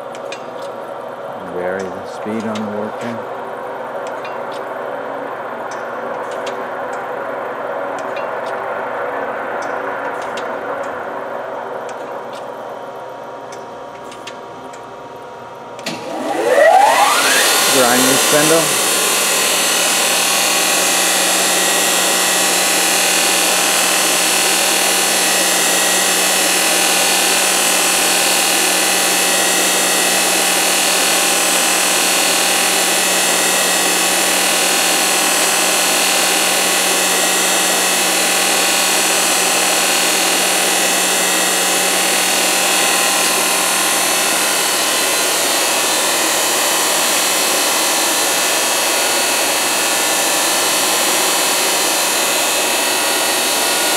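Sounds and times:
grinder spindle whine and hiss: 0:00.0 - 0:14.4, 0:15.4 - 0:53.9
low hum: 0:00.2 - 0:23.4.

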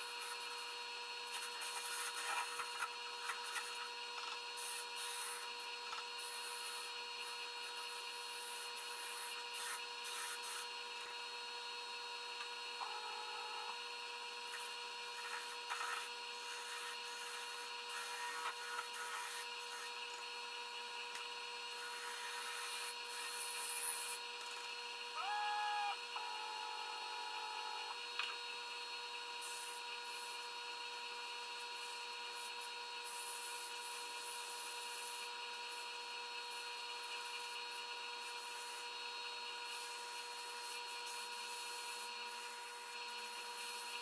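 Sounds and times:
lathe whining: 0:25.2 - 0:28.0.

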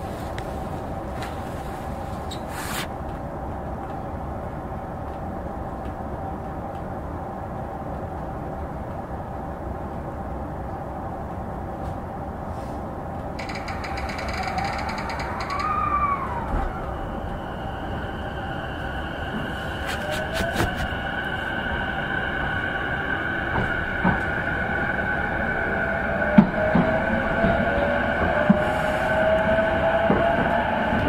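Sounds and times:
train equipment humming: 0:00.0 - 0:31.0
traction inverter whine: 0:13.4 - 0:31.0
rising and falling tone: 0:13.6 - 0:22.3.

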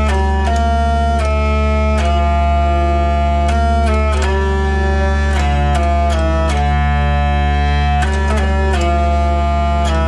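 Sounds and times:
hurdy-gurdy drones and melody: 0:00.0 - 0:10.0.

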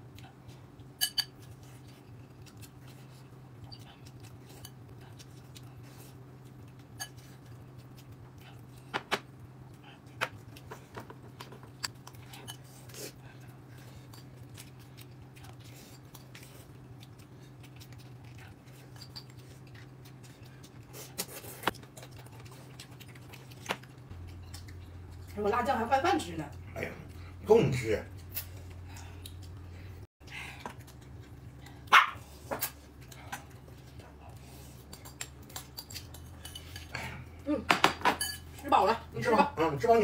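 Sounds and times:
steady low hum: 0:00.0 - 0:40.0
utensils clinking against dishes: 0:01.0 - 0:01.5, 0:34.9 - 0:37.0, 0:37.8 - 0:38.6.

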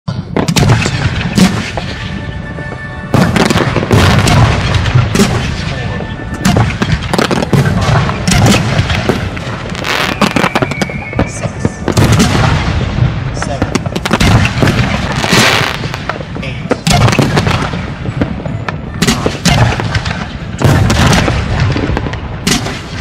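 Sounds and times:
fireworks bangs and pops: 0:00.1 - 0:23.0.

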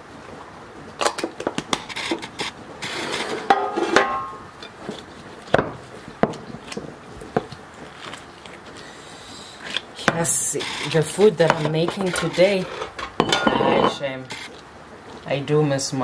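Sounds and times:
cookware knocks and clatters: 0:03.5 - 0:04.4, 0:13.0 - 0:14.0.

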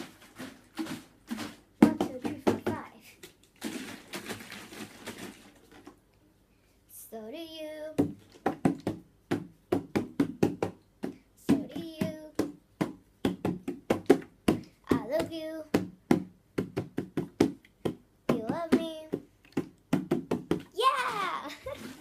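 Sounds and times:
hands drumming on plastic bottle: 0:00.0 - 0:02.9, 0:08.0 - 0:20.7.

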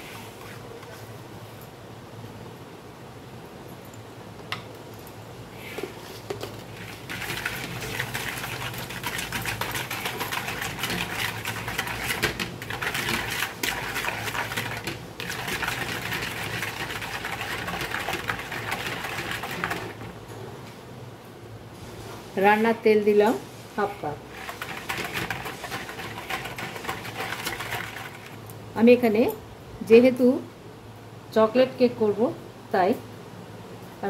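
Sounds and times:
whisk clattering in plastic bowl: 0:06.8 - 0:20.2, 0:24.3 - 0:28.4.

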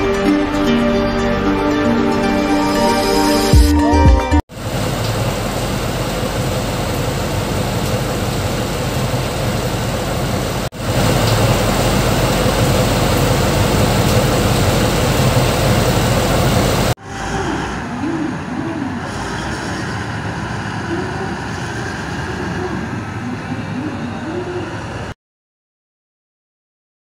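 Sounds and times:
diesel truck engine running: 0:04.6 - 0:25.1
haul trucks moving: 0:04.6 - 0:25.2.

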